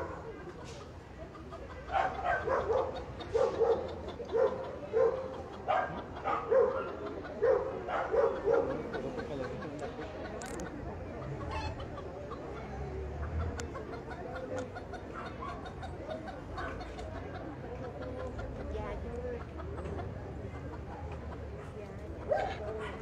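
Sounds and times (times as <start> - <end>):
small dog barking: 1.9 - 8.9.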